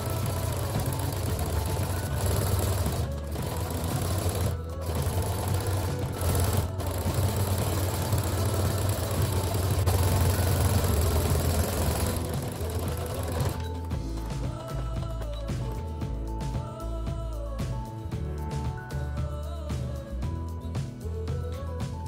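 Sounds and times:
sewing machine stitching: 0.0s - 15.8s.

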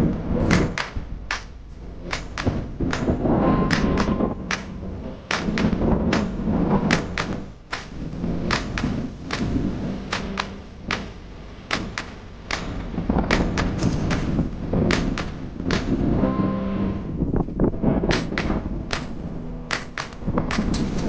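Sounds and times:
faint hum: 0.0s - 21.0s
low background rumble: 0.0s - 21.0s
sharp knocks and thuds: 0.4s - 16.1s, 18.1s - 21.0s.

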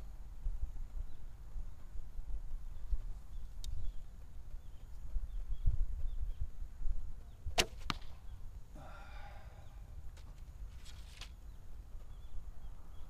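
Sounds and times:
wind rumble on microphone: 0.0s - 13.0s
bow string crack: 7.5s - 8.3s.

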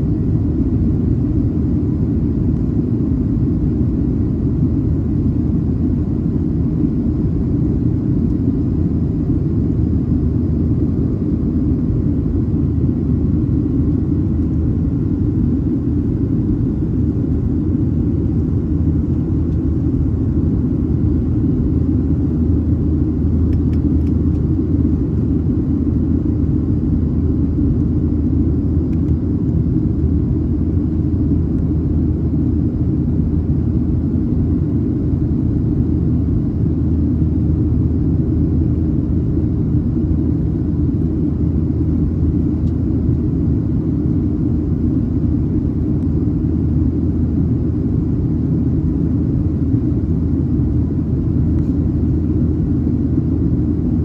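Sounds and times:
airliner cabin engine rumble: 0.0s - 54.0s.

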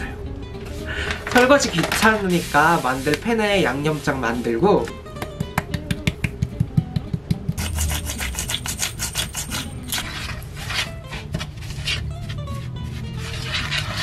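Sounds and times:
spatula scraping a pan: 7.6s - 14.0s.

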